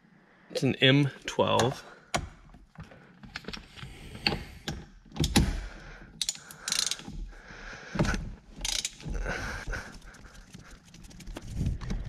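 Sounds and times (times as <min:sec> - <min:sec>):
hand ratchet clicking: 0:06.2 - 0:07.2, 0:08.6 - 0:09.2
metal tool parts clinking: 0:08.6 - 0:09.1.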